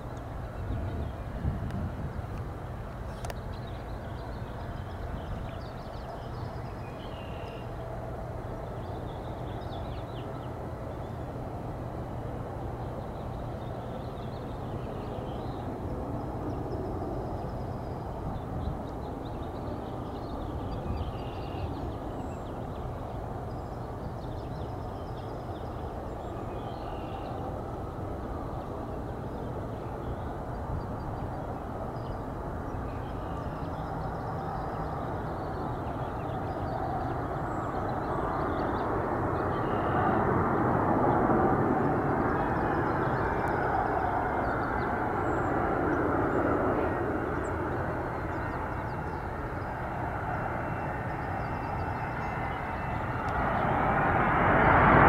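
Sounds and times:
distant jet engine rumble: 0.0 - 55.0
birds chirping: 41.8 - 54.0.

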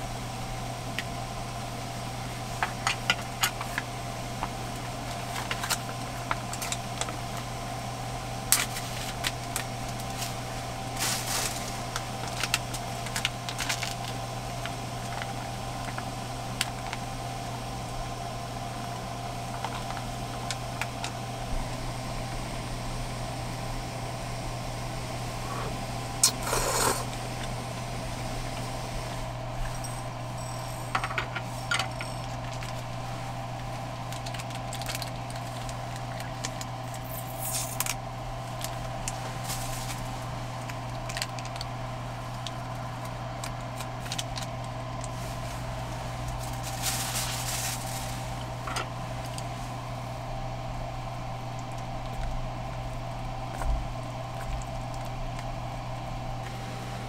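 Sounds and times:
gas stove hum: 0.0 - 57.0
plastic packet rustling: 11.0 - 14.2, 34.1 - 37.9, 46.3 - 48.5.

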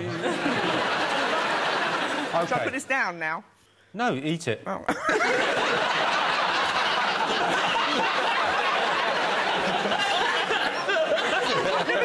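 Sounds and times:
audience laughing: 0.0 - 2.7, 5.0 - 12.0.

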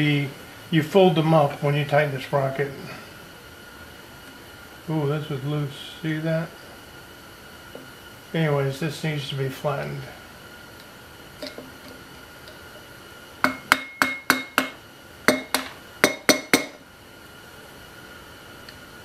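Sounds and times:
hammer tapping on metal: 13.4 - 16.8.

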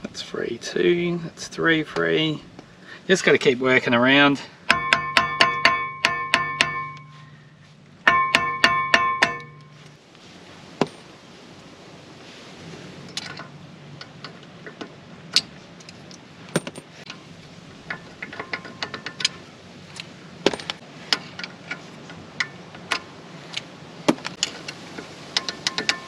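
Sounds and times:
brass punch tapping metal: 4.7 - 7.2, 8.0 - 9.8
sharp metallic taps and clinks: 4.7 - 7.2, 8.0 - 9.8.

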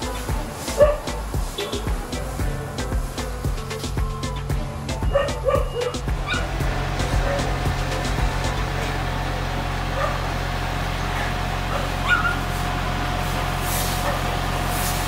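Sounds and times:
fire truck engine humming: 0.0 - 15.0
dog yipping and barking: 0.8 - 1.1, 5.1 - 6.5, 11.7 - 12.5.

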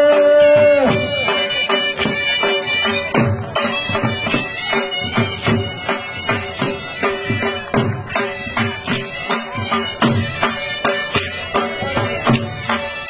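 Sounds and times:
drum beating dance rhythm: 0.0 - 13.0
shehnai melody: 0.0 - 13.0.

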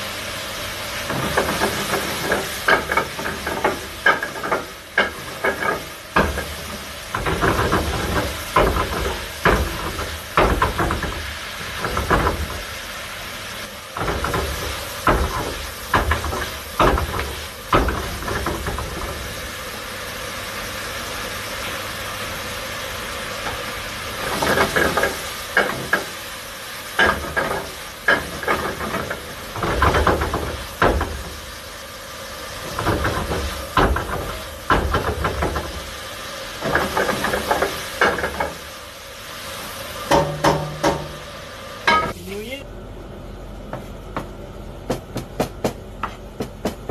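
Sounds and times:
vegetables frying in a pan: 0.0 - 42.6
exhaust hood hiss and hum: 0.0 - 46.9
utensil clanking against a pan: 1.1 - 12.6, 24.2 - 26.2, 26.9 - 31.4, 41.9 - 42.2.

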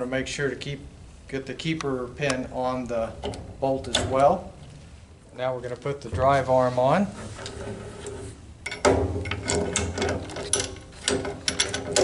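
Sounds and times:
metal wrench clicking and knocking: 8.6 - 12.0.

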